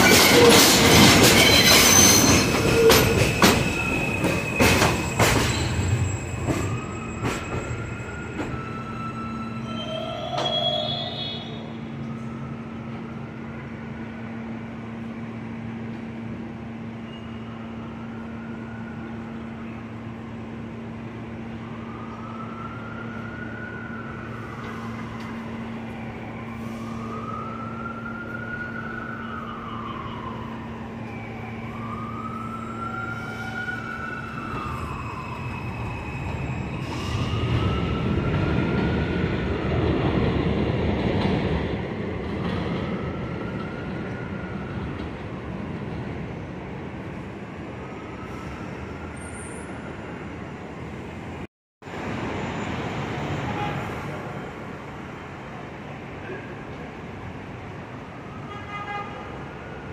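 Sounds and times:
emergency vehicle siren wailing: 0.0 - 15.0, 17.3 - 40.6, 41.7 - 51.4, 52.4 - 59.9
train rumbling: 0.0 - 17.1, 29.8 - 49.2.

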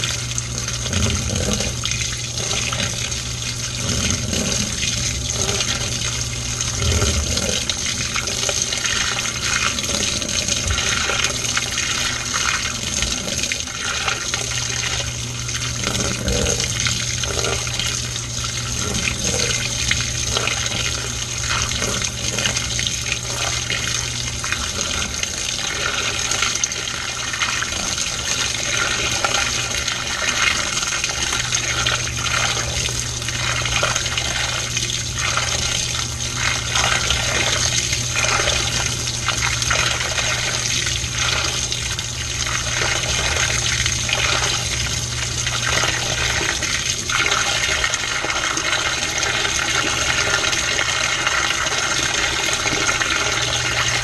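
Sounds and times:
low steady hum: 0.0 - 54.0
water sloshing in washing machine: 0.0 - 54.0.

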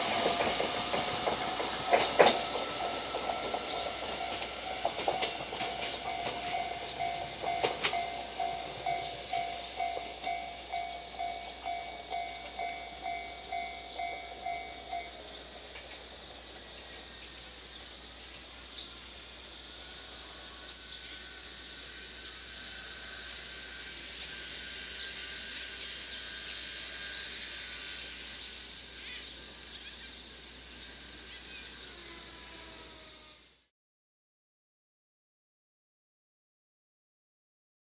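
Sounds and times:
level-crossing alarm bell: 0.0 - 15.6, 20.0 - 28.8
insects chirping: 0.0 - 33.6.

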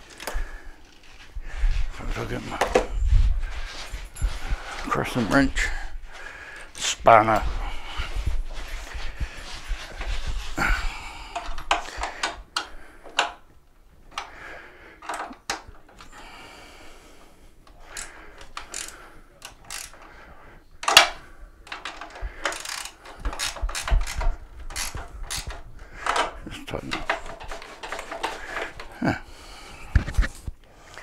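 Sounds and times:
wrench scraping: 17.8 - 20.1, 21.7 - 29.0
wrench clicking on bolts: 17.9 - 20.0, 21.7 - 26.3.

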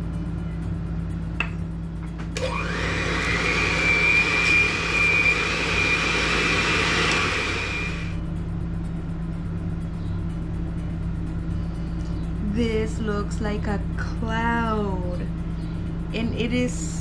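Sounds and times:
electric hand mixer whining: 2.4 - 8.2.

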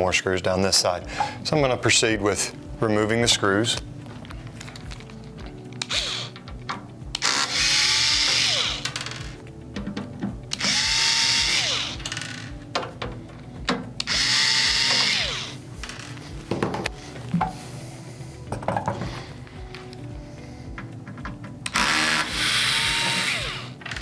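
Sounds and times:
cordless drill running: 5.8 - 6.4, 7.2 - 9.4, 10.6 - 12.1, 14.0 - 15.6, 21.7 - 24.0.

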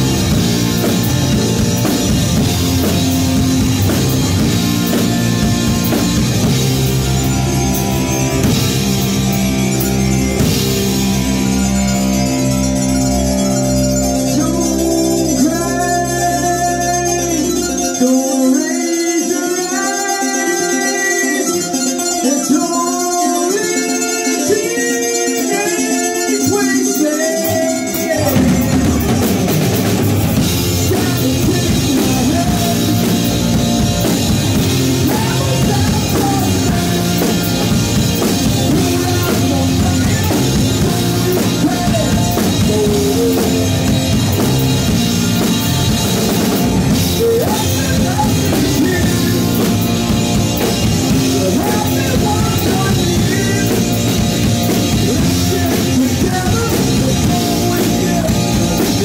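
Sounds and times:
drum kit: 0.0 - 16.7, 25.4 - 59.0
bass guitar: 0.0 - 22.4, 24.4 - 59.0
electric guitar: 0.0 - 59.0
person singing into a microphone: 14.3 - 29.4, 30.4 - 44.4, 46.9 - 50.2, 51.1 - 59.0.

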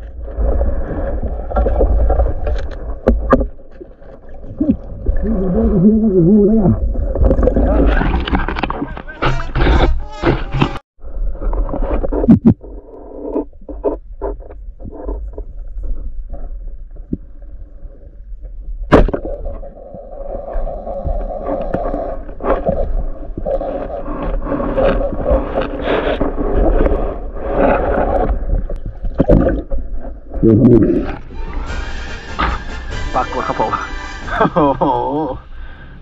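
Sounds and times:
underwater water movement: 0.0 - 36.0
gear knocking and scraping: 7.2 - 10.8.

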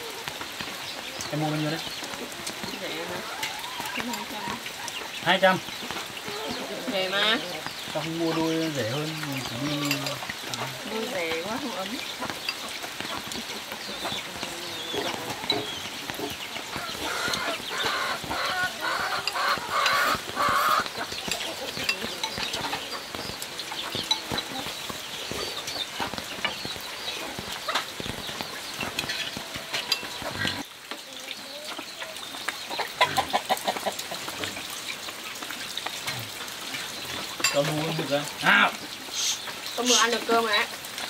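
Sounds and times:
chickens clucking: 0.0 - 41.0
people eating noodles: 1.3 - 26.1.

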